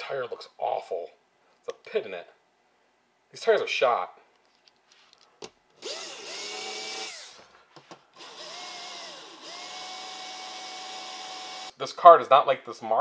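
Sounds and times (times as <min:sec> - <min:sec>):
slot car motor whining: 0:08.2 - 0:11.7.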